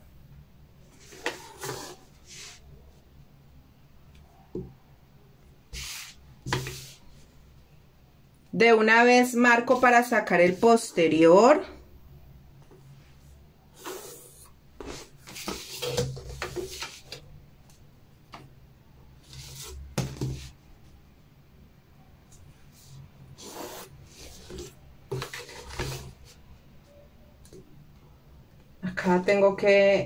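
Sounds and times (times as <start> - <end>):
ruler and pen scraping paper: 1.0 - 2.6, 22.8 - 26.2.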